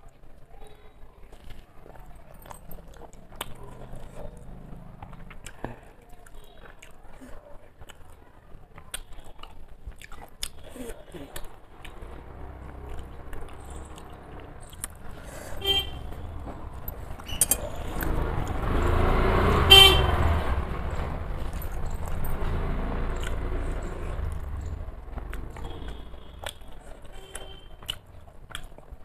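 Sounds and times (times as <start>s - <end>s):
vehicle engine passing: 11.7s - 28.2s
car horn toot: 15.6s - 16.4s, 19.5s - 20.4s, 25.6s - 27.8s.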